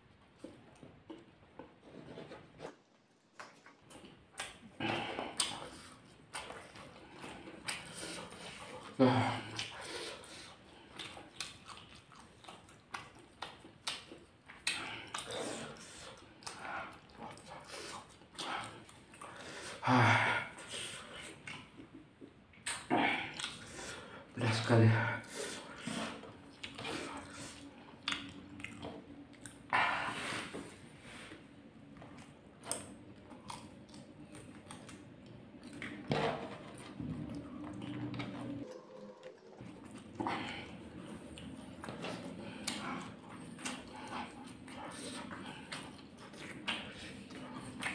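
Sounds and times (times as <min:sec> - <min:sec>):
lip smacks and mouth clicks: 0:03.3 - 0:08.9, 0:09.5 - 0:19.3, 0:21.2 - 0:23.8, 0:26.2 - 0:29.7, 0:32.0 - 0:36.0, 0:40.9 - 0:47.9
wet chewing: 0:03.4 - 0:19.4, 0:21.0 - 0:24.1, 0:25.3 - 0:29.7, 0:30.8 - 0:36.1, 0:36.7 - 0:47.9
loud vocal grunt: 0:09.0 - 0:09.6.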